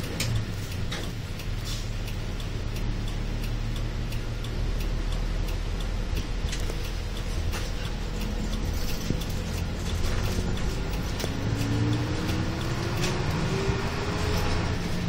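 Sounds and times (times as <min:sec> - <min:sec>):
bus engine rumble: 0:00.0 - 0:15.0.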